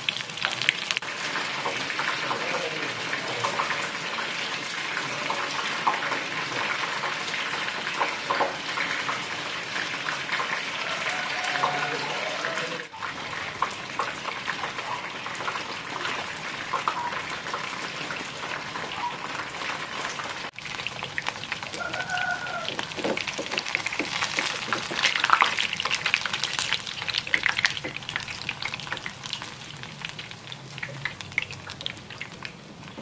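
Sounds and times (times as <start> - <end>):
oil sizzling in a frying pan: 0.0 - 33.0
crackles and pops: 18.8 - 33.0.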